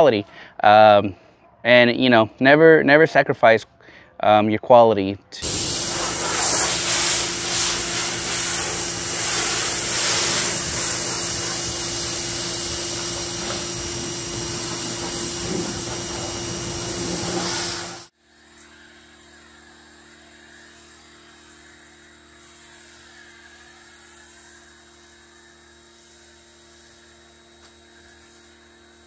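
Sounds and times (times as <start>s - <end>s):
pressure washer spray hiss: 5.4s - 18.1s, 27.9s - 29.0s
motor hum: 5.4s - 22.3s.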